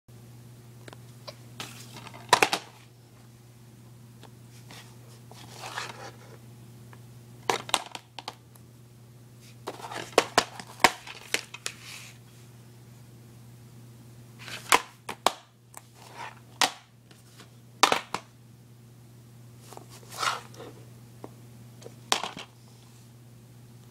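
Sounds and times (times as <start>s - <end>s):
steady low hum: 0.1s - 23.9s
soft shuffle: 19.6s - 20.8s.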